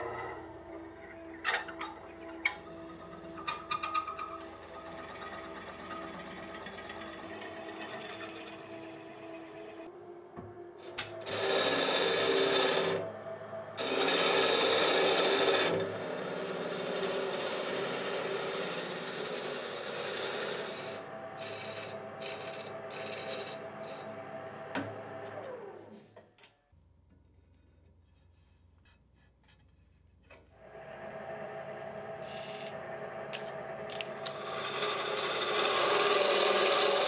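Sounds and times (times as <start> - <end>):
wood lathe running: 0.0 - 9.9, 10.8 - 25.9, 30.6 - 37.0
turning tool cutting wood: 1.5 - 9.8, 11.1 - 13.0, 13.8 - 25.7, 32.2 - 37.0.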